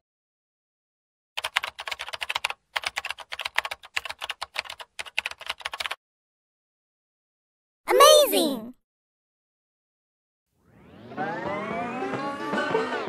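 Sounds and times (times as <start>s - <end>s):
computer keyboard typing clicks: 1.4s - 6.0s.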